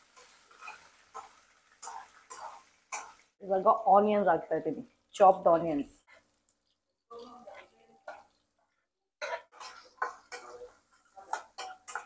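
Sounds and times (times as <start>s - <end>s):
spoon scraping and tapping pan: 0.0s - 3.3s, 7.5s - 8.5s, 9.2s - 12.0s.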